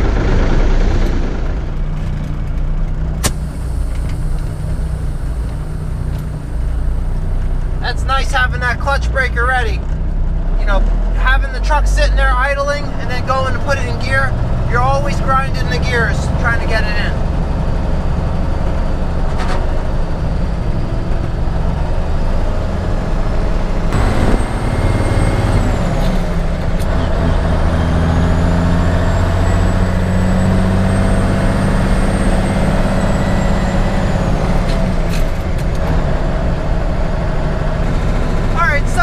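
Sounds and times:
diesel truck engine: 0.0 - 39.0
faint high whine: 3.2 - 8.3.

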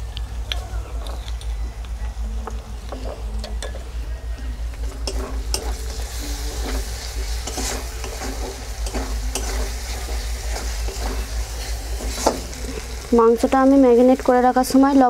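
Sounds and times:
frying sizzle: 4.7 - 15.0
metal spatula scraping pan: 5.0 - 13.0.

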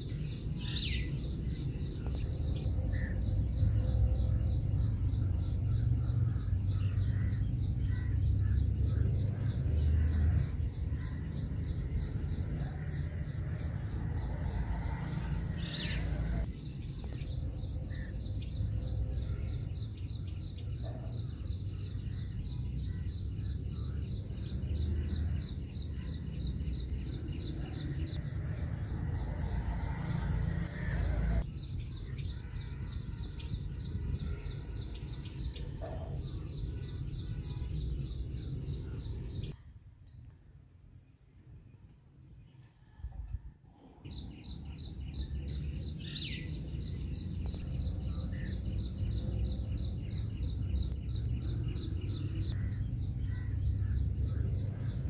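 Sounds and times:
birds chirping: 0.0 - 40.4, 43.8 - 55.0.

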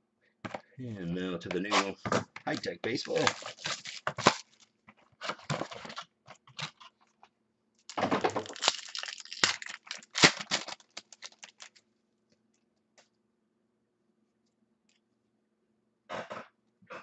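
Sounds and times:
foil wrapper tearing and crinkling: 2.5 - 4.7, 8.3 - 11.8.

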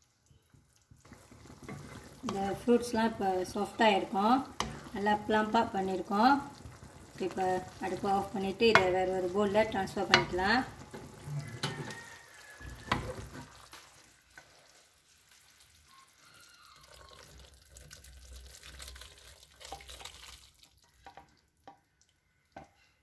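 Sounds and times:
wooden spoon stirring and knocking: 0.5 - 13.7.

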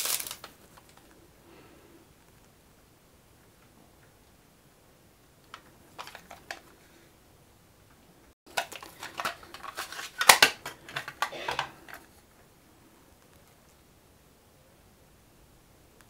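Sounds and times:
plastic cassette case clicks and rattles: 5.5 - 6.6, 8.5 - 12.0.

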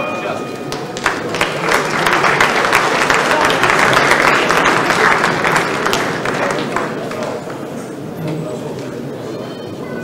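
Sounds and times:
audience applauding: 0.7 - 7.6.

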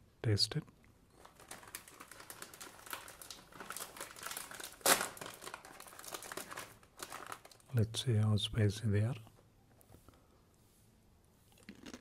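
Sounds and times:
chip bag crinkling: 1.1 - 7.8
bag tearing: 1.2 - 7.6.

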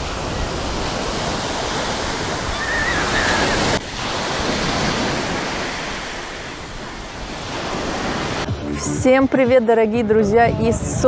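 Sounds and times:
waves breaking on beach: 0.0 - 8.5.

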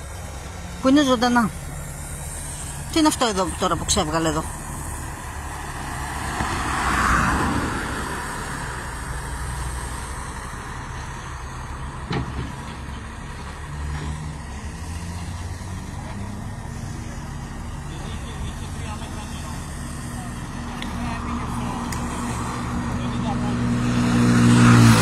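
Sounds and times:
traffic engine rumble: 0.0 - 25.0
vehicle passing close: 0.0 - 25.0.

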